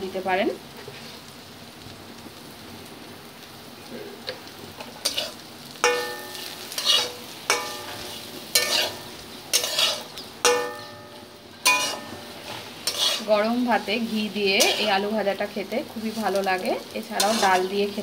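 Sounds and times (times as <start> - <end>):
potatoes sizzling in pan: 0.0 - 18.0
spatula scraping metal pan: 5.0 - 13.5, 14.5 - 15.0, 17.2 - 17.8.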